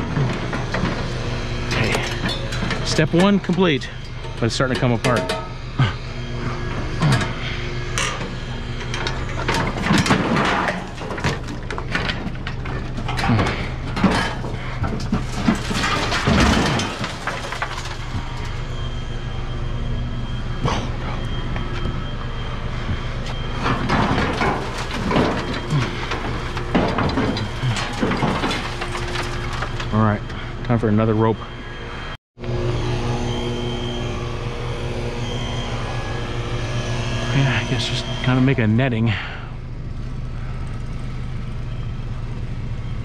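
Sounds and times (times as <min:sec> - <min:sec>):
steady low hum: 0:00.0 - 0:43.0
scrap knocking and rattling: 0:08.8 - 0:18.5, 0:23.5 - 0:30.0.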